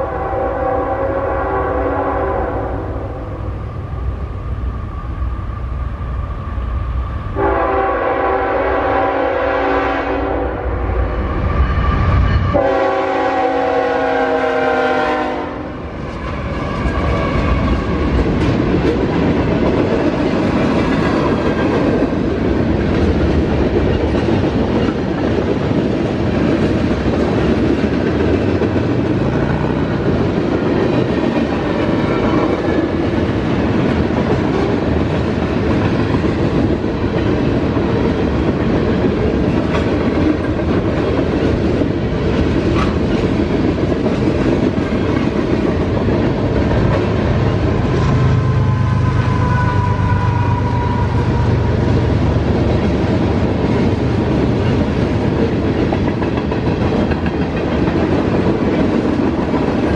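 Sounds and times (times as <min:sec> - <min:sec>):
train wheels clattering on rails: 0:15.9 - 0:48.1, 0:49.2 - 0:59.9.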